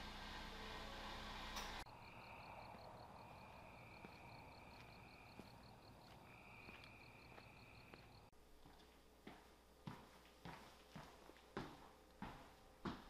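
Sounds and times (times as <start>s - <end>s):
cricket trilling: 1.9s - 8.3s
insect chirping: 1.9s - 8.3s.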